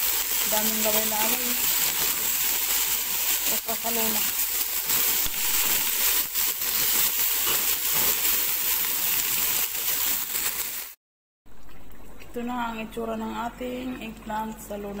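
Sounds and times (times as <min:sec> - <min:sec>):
okra sizzling in hot oil: 0:00.0 - 0:11.0.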